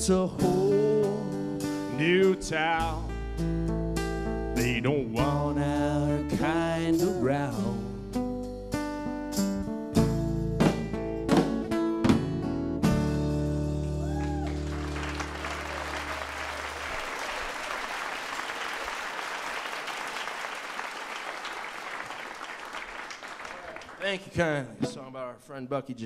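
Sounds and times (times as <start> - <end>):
band playing: 10.0 - 22.4, 24.1 - 25.4
audience applause: 13.8 - 24.3.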